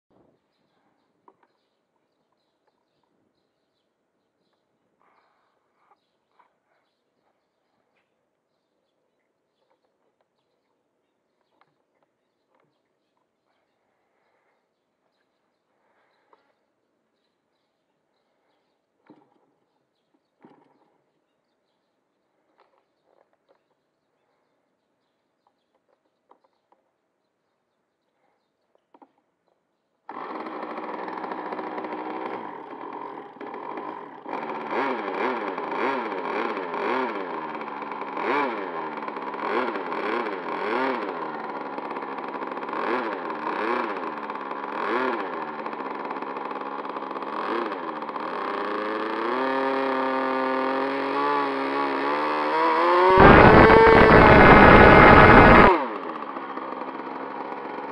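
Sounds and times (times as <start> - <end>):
model glow engine running: 30.1 - 57.9.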